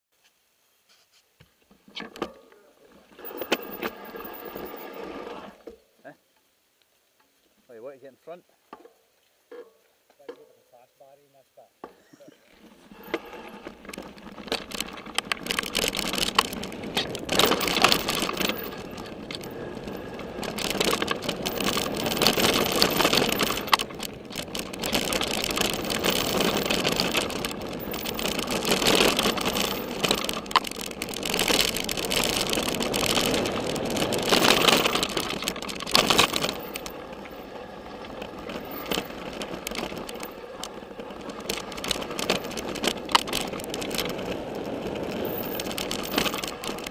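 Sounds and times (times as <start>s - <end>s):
wind and tyres on gravel rushing: 2.8s - 5.6s, 12.5s - 46.9s
bike clattering over rocks: 12.6s - 37.4s, 38.0s - 46.9s.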